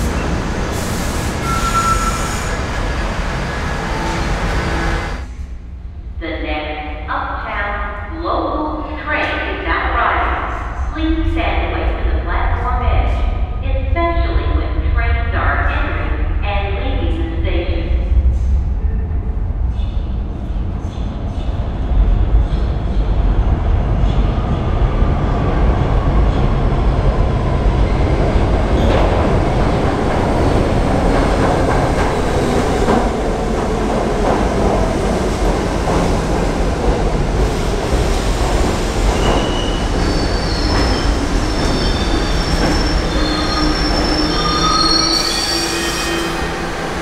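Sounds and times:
high-pitched wheel squeals: 1.4 - 2.6, 39.4 - 46.5
train wheels rumbling on rails: 15.8 - 47.0.

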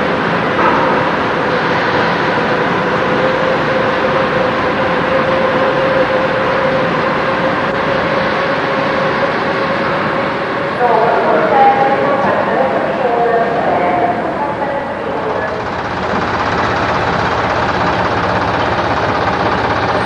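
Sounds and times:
engine drone: 0.0 - 20.0.

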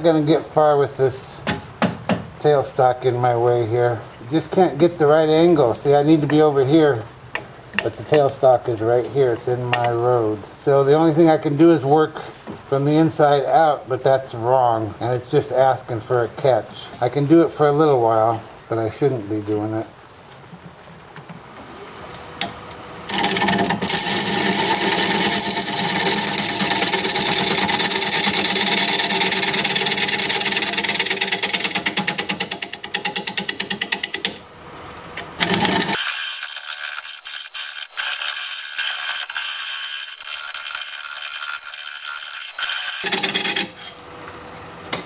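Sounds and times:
lathe gouge chattering on wood: 23.1 - 34.4, 35.4 - 43.9.

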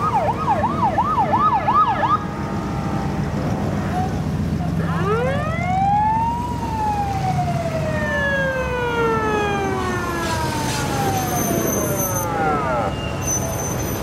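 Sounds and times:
passing car engines: 0.0 - 14.0
siren wailing: 0.0 - 14.0.

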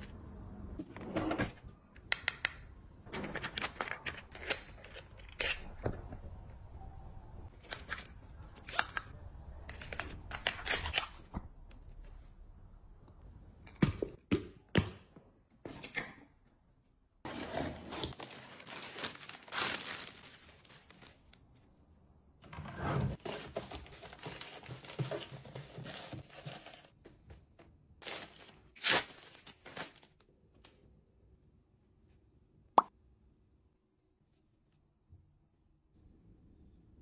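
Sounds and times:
plastic packaging crinkling: 17.9 - 21.4.

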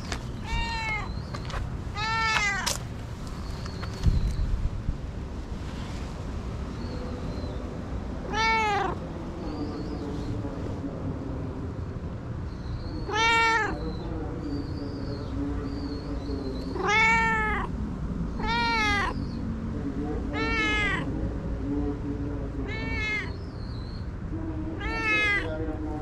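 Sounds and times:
cat meowing: 0.4 - 1.2, 2.0 - 2.8, 8.2 - 9.0, 13.0 - 13.9, 16.7 - 17.8, 18.4 - 19.2, 20.3 - 21.1, 22.6 - 23.4, 24.7 - 25.6.

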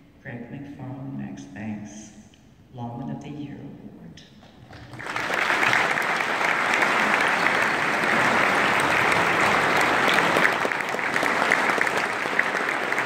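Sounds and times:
large audience applauding: 4.7 - 13.0.

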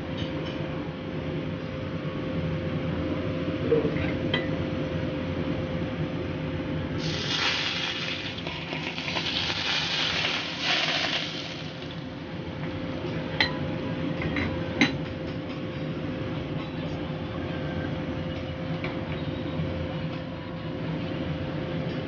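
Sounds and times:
hot oil sizzling: 7.0 - 12.3.

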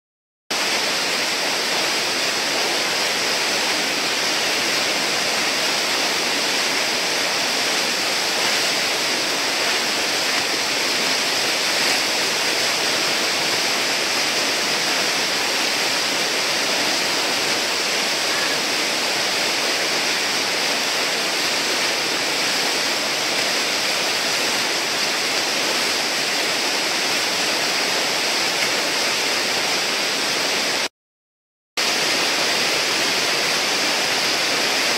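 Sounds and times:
river whitewater rushing: 0.5 - 30.9, 31.8 - 34.9.

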